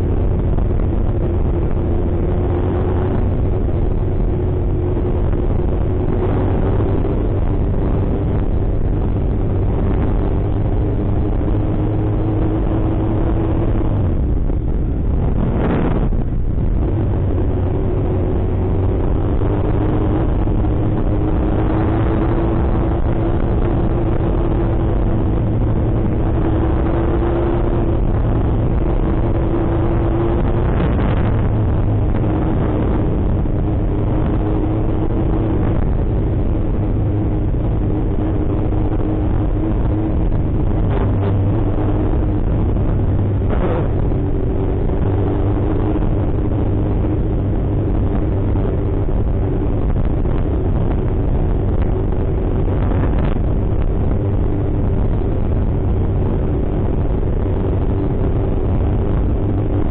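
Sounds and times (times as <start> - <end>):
car road and engine noise: 0.0 - 59.9.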